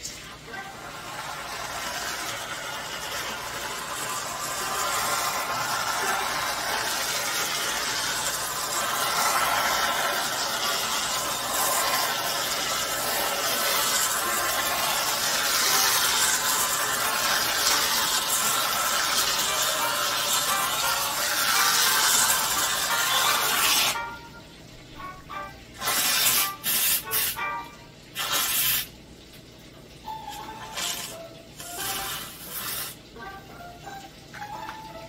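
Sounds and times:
aerosol can spraying: 1.6 - 24.0, 25.8 - 27.5, 28.2 - 28.9, 30.8 - 33.0.

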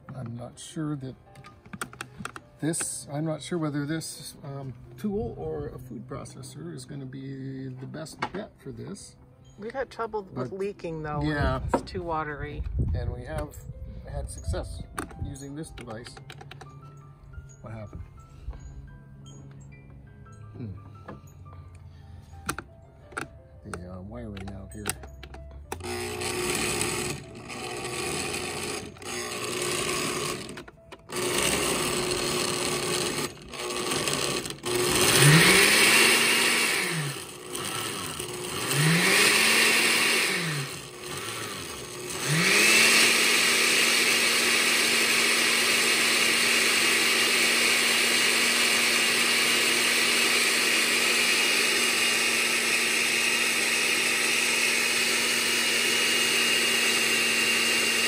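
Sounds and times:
electric blender motor: 24.5 - 58.0.

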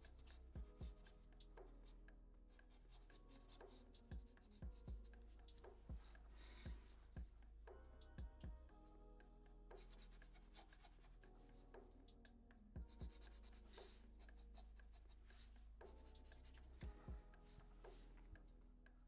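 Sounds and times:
marker scratching on paper: 0.0 - 2.0, 2.6 - 7.2, 9.8 - 11.9, 12.9 - 16.8, 17.4 - 18.2
soft low knocks: 4.1 - 8.8.

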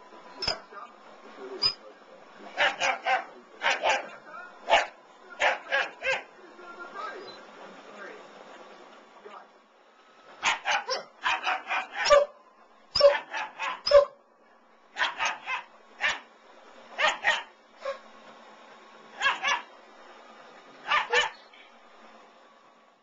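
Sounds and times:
puppy barking in high yaps: 2.6 - 4.1, 4.7 - 6.3, 10.4 - 12.4, 13.0 - 14.2, 15.0 - 16.3, 17.0 - 18.0, 19.2 - 19.7, 20.8 - 21.4.

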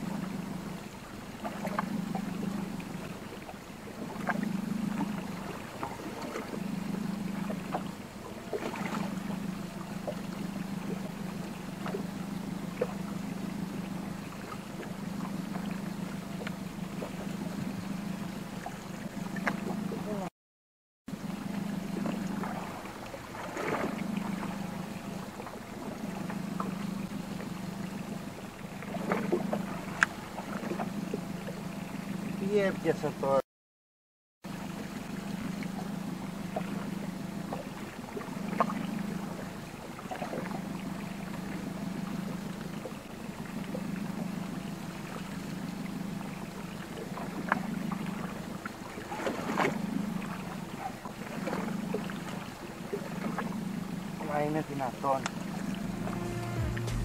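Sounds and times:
low hum: 0.0 - 20.3, 21.1 - 32.5, 51.4 - 57.0
water lapping against boat hull: 0.0 - 20.3, 21.1 - 33.4, 34.5 - 57.0.

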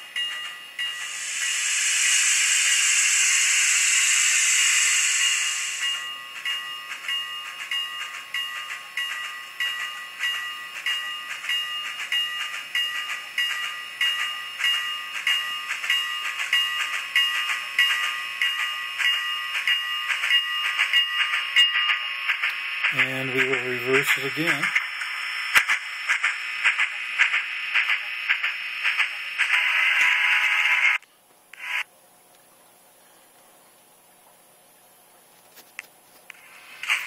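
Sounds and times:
steam locomotive chuffs: 0.0 - 31.0
steam hiss from small speaker: 0.9 - 6.2, 36.3 - 37.0.

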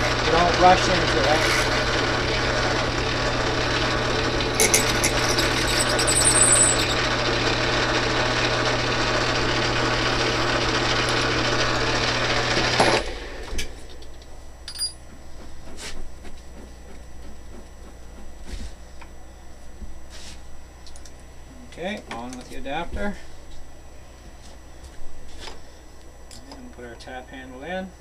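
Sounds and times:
lathe drilling into metal: 0.0 - 13.6
high-pitched squeal: 3.9 - 7.1.

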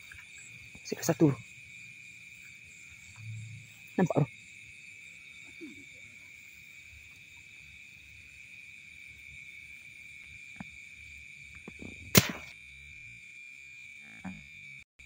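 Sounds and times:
frogs and insects chorus: 0.0 - 14.9
air rifle shot: 12.1 - 12.6.

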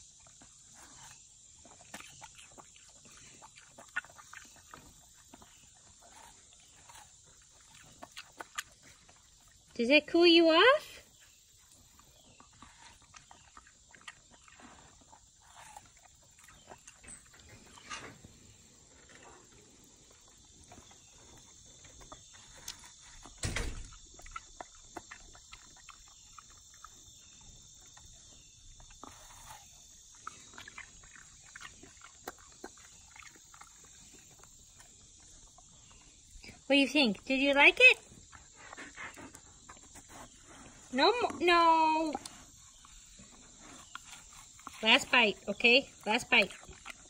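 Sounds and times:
dog chewing watermelon: 0.0 - 47.0.

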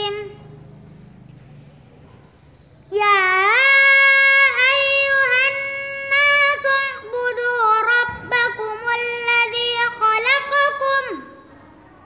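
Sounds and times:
girl chanting melodic recitation: 0.0 - 0.7, 2.8 - 12.0.

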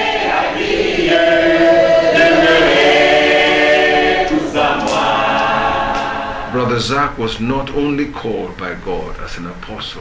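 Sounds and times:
choir singing a hymn: 0.0 - 6.9.

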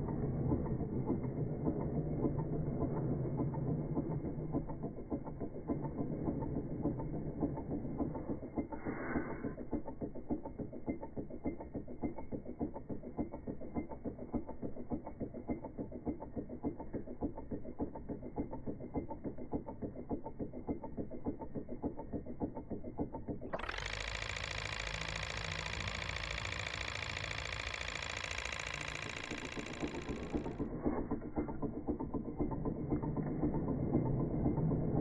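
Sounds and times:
stirling engine clattering: 0.0 - 8.8, 9.5 - 35.0.

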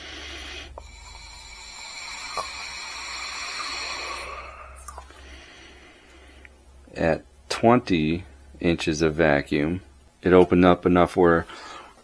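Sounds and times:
air hissing through valve: 0.0 - 4.9.

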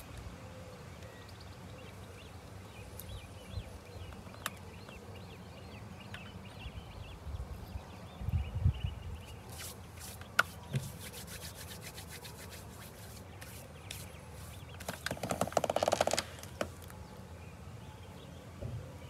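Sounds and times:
hands rubbing together: 9.3 - 15.4.

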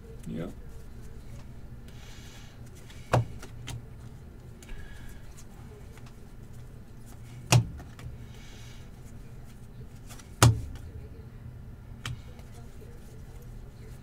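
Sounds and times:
steady low hum: 0.0 - 14.0
cards rustling: 9.0 - 10.9.

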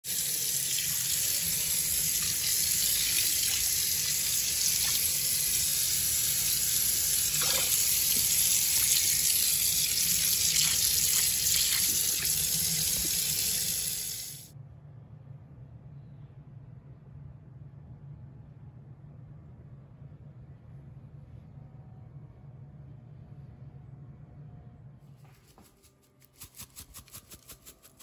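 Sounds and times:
tap water running into sink: 0.1 - 14.4.

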